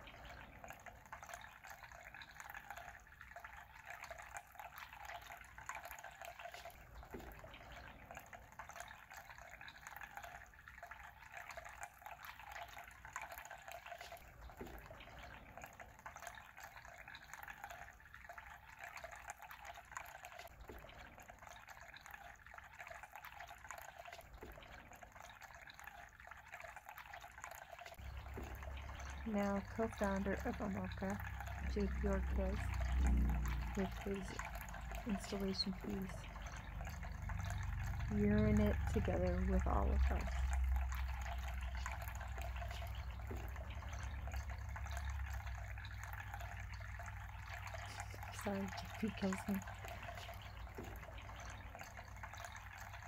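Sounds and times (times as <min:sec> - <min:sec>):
tabletop fountain trickling: 0:00.0 - 0:53.0
low hum: 0:28.0 - 0:53.0.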